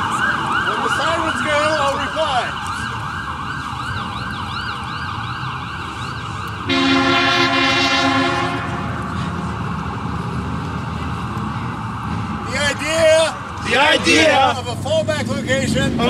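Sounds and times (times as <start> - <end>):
emergency vehicle siren yelping: 0.0 - 16.0
loud deep horn blast: 6.7 - 9.4.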